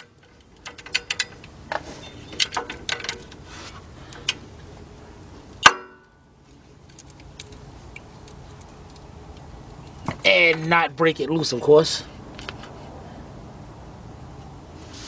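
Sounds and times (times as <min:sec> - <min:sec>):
metal tools clicking and clinking: 0:00.0 - 0:03.4, 0:06.8 - 0:09.1
metallic clang: 0:05.6 - 0:06.2.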